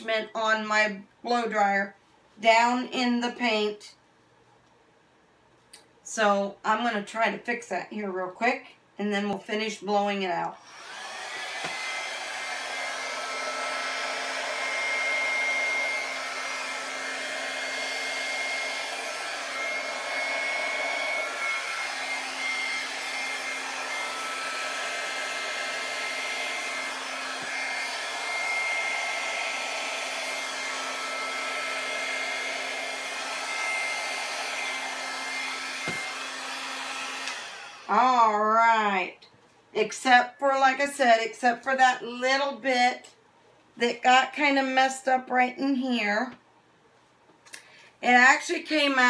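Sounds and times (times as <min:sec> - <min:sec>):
hair dryer running: 0:10.5 - 0:38.7.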